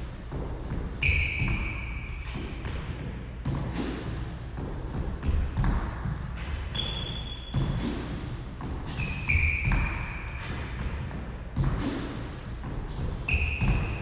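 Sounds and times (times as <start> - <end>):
shoes squeaking on court floor: 0.7 - 3.9, 5.6 - 12.3, 12.9 - 14.0.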